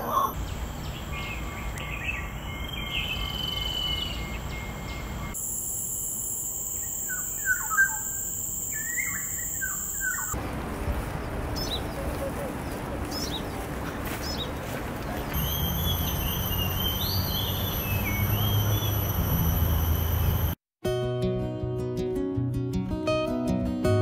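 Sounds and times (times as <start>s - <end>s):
steady high background tone: 0.0s - 10.6s, 15.3s - 20.6s
long clear bird whistle: 6.7s - 10.4s, 15.4s - 20.6s.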